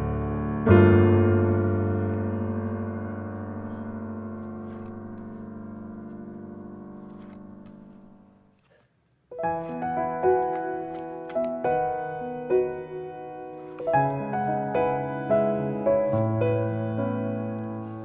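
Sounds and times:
piano music: 0:00.0 - 0:08.5, 0:09.3 - 0:18.0
photo cards clicking: 0:04.4 - 0:08.8, 0:09.6 - 0:12.0.

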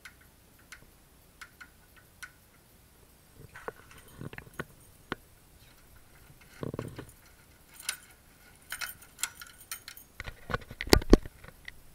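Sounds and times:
keys jingling on a ring: 0:05.6 - 0:10.2.

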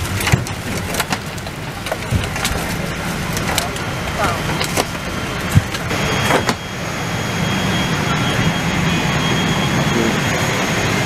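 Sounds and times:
cabin air conditioning hum: 0:00.0 - 0:08.0
faint high whine: 0:02.9 - 0:11.0.

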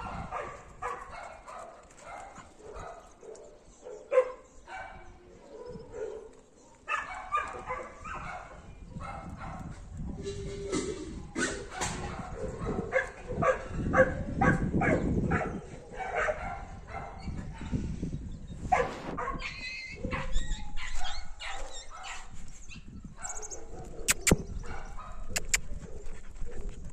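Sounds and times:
dogs yipping and barking: 0:00.0 - 0:09.9, 0:10.7 - 0:17.9, 0:18.6 - 0:26.9
sharp clicks: 0:24.1 - 0:24.4, 0:25.4 - 0:25.6.

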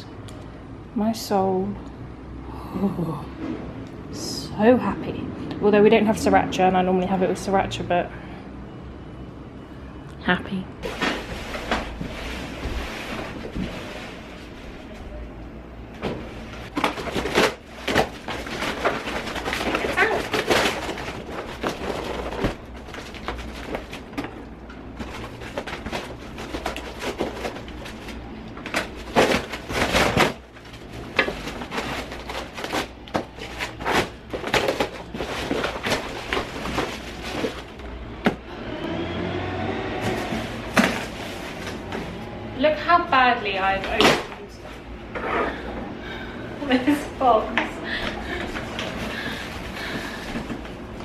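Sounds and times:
cardboard rustling and tearing: 0:16.0 - 0:38.4, 0:40.0 - 0:42.2
plastic wrapping crinkling: 0:16.4 - 0:38.2.

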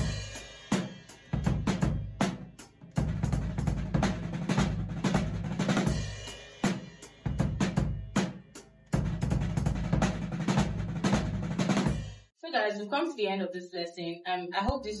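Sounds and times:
bass drum kicks: 0:01.4 - 0:02.2, 0:07.3 - 0:08.2, 0:09.0 - 0:12.1.

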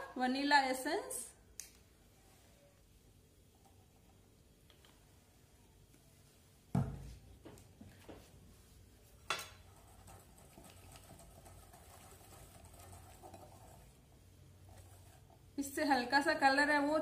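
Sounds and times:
soft whisking: 0:08.2 - 0:16.8.

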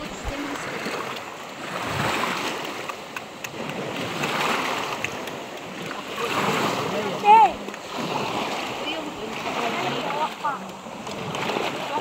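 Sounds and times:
waves washing on shore: 0:00.0 - 0:12.0.

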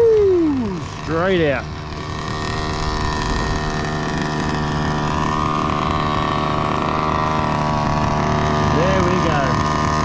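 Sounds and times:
two-stroke engine idling: 0:00.0 - 0:10.0.

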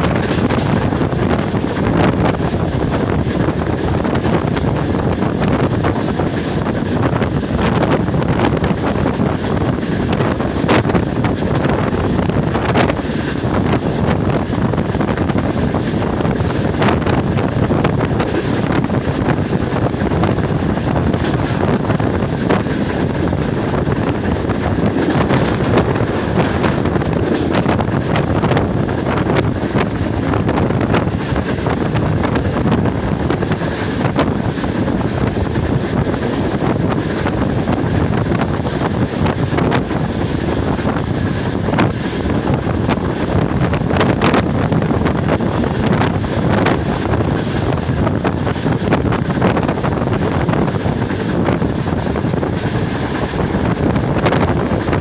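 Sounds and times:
train running on track: 0:00.0 - 0:55.0
wind buffeting microphone: 0:00.0 - 0:55.0.

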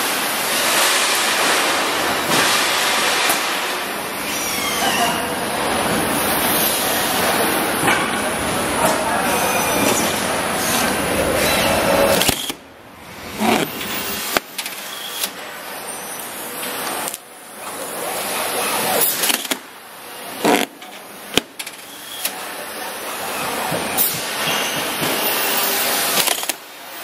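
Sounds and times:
packaging machine whirring: 0:09.2 - 0:27.0.

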